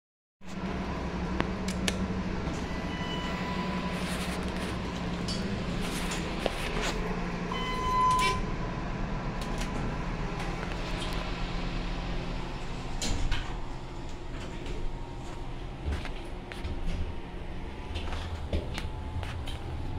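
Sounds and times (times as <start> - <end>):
elevator humming: 0.5 - 19.9
short electronic beep: 2.6 - 3.9, 7.5 - 8.5.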